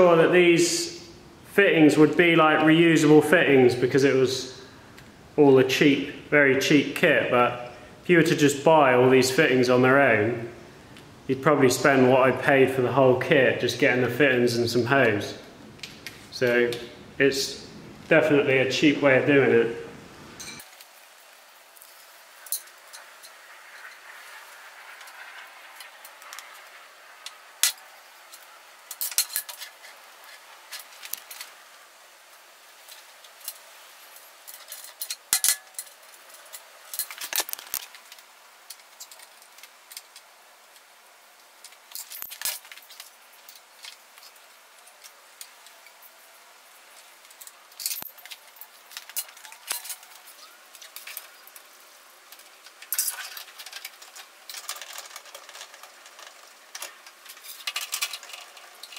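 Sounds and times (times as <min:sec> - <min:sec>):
metal fittings clicking and clinking: 0:27.2 - 0:31.6, 0:34.2 - 0:40.9, 0:46.9 - 0:58.9.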